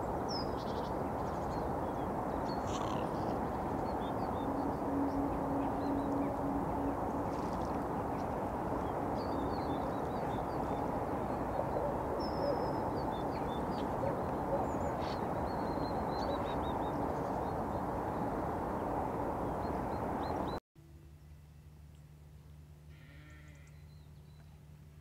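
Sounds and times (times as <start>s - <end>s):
small birds chirping: 0.0s - 18.4s
road traffic hum: 0.0s - 21.2s
low steady drone: 0.0s - 25.0s.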